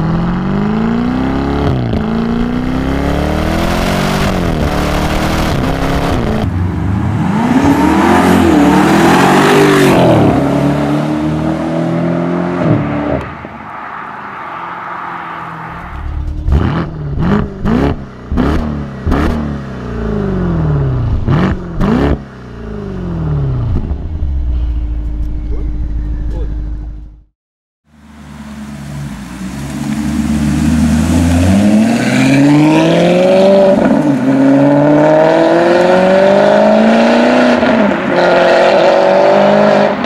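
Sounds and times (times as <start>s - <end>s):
car engine accelerating hard: 0.0s - 13.4s, 15.4s - 27.2s, 27.9s - 40.0s
engine revving: 0.0s - 13.4s, 15.3s - 27.3s, 28.0s - 40.0s
exhaust cracks: 15.7s - 19.4s
car engine idling: 22.5s - 27.2s, 27.9s - 31.5s.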